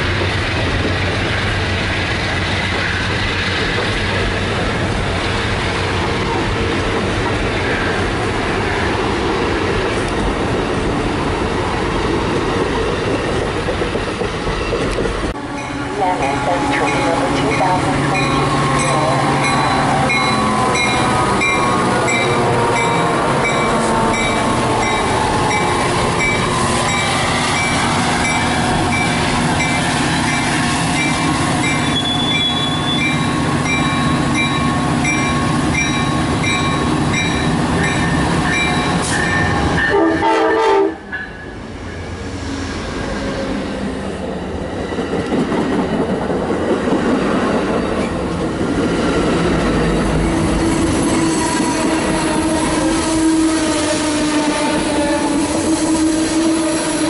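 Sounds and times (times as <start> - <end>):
train cars rumbling past: 0.0 - 57.0
train passing at speed: 0.0 - 57.0
train horn: 15.4 - 29.0, 39.0 - 41.1, 50.7 - 57.0
bell ringing: 15.6 - 26.4.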